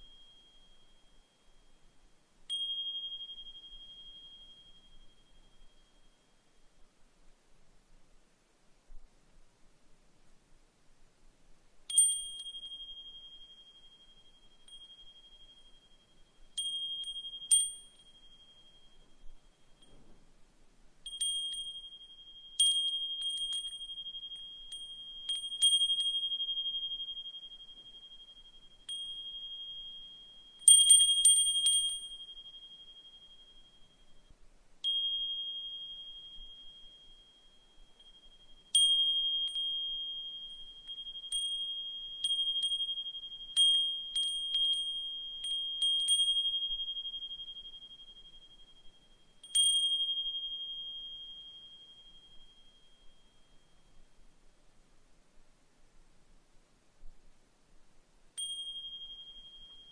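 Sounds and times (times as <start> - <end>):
wind chime ringing: 11.9 - 20.1, 21.0 - 54.1, 58.4 - 59.9.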